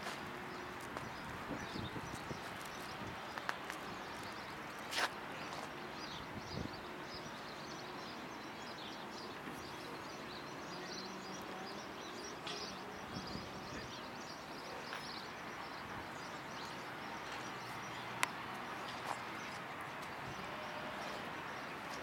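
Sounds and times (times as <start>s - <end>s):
background noise: 0.0s - 22.0s
small birds chirping: 0.1s - 22.0s.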